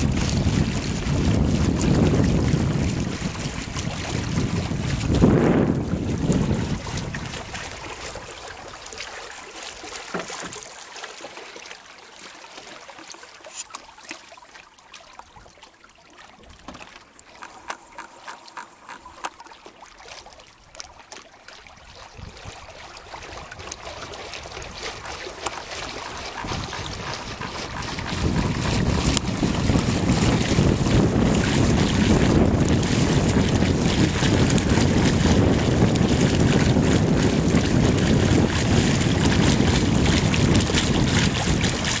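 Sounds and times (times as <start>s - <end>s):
wind on microphone: 0.0s - 8.7s, 21.8s - 42.0s
water lapping against boat hull: 0.0s - 42.0s
water slaps and splashes: 0.0s - 42.0s.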